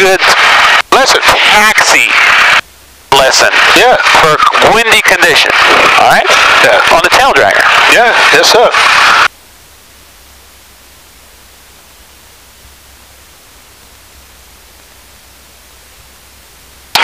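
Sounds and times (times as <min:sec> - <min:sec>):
steady electronic hiss: 0:00.0 - 0:17.0
faint low hum: 0:09.3 - 0:17.0.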